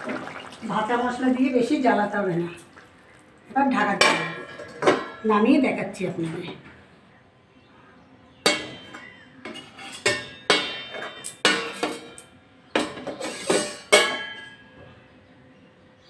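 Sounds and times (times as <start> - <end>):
metal lid clanking on pot: 4.0 - 5.3, 8.4 - 12.2, 12.8 - 14.6.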